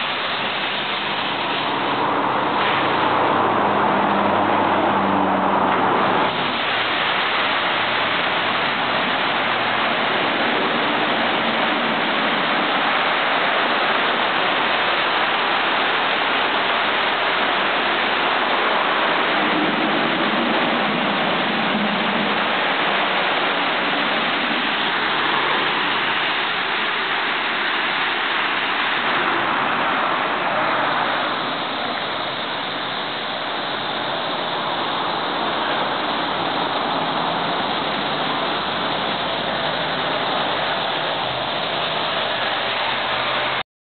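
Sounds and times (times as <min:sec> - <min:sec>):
water jets hissing: 0:00.0 - 0:43.6
water splashing on car: 0:00.0 - 0:43.6.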